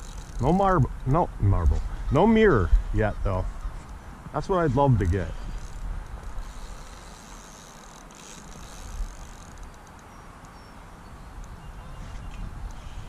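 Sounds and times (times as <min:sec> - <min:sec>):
wind buffeting microphone: 0:00.0 - 0:07.2, 0:10.6 - 0:13.0
faint high ticks: 0:05.0 - 0:10.6, 0:11.4 - 0:11.6.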